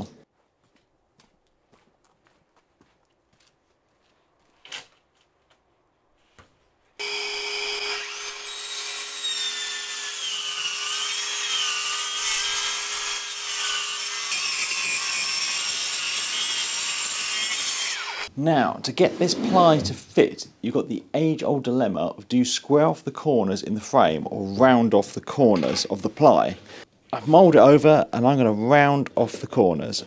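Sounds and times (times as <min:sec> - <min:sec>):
saw cutting plywood: 0:07.0 - 0:18.3.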